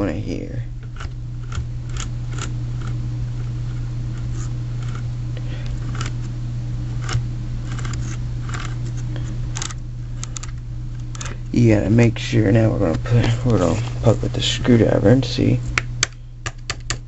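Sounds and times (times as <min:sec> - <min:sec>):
drill motor humming: 0:00.0 - 0:11.6
gears clicking: 0:00.9 - 0:05.0, 0:05.8 - 0:06.2, 0:07.0 - 0:08.8, 0:09.5 - 0:11.3.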